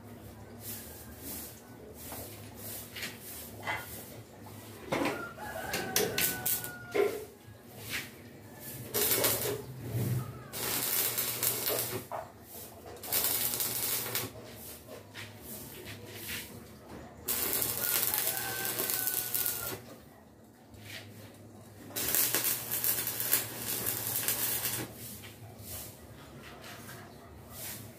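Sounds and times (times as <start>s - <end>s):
rooster crowing: 5.0s - 7.4s, 17.3s - 19.9s
welding arc crackling: 6.0s - 6.8s, 8.8s - 9.6s, 10.5s - 12.1s, 13.0s - 14.4s, 17.3s - 19.8s, 21.9s - 25.0s.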